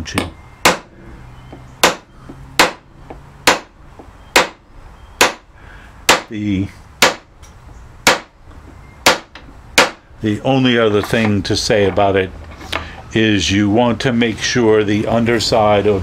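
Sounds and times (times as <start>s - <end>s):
hammer striking steel punch: 0.0s - 3.7s, 4.3s - 4.6s, 5.2s - 5.5s, 6.1s - 6.3s, 7.0s - 7.3s, 8.0s - 8.4s, 9.0s - 10.0s.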